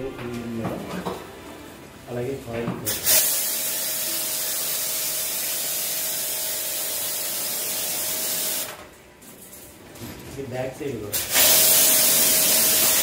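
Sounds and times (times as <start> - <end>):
spray gun hissing: 2.9 - 8.7, 11.1 - 13.0.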